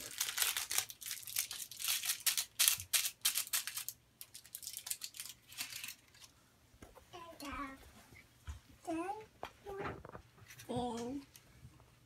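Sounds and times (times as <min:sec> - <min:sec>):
crinkly material rustling: 0:00.0 - 0:06.4, 0:09.4 - 0:11.4.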